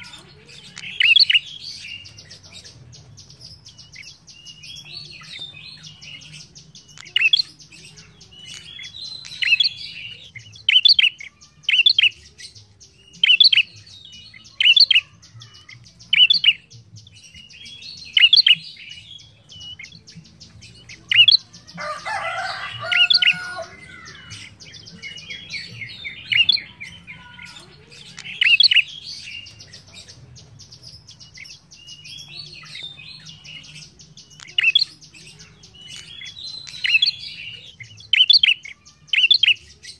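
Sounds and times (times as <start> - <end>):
bird harsh chattering: 20.9 - 39.7.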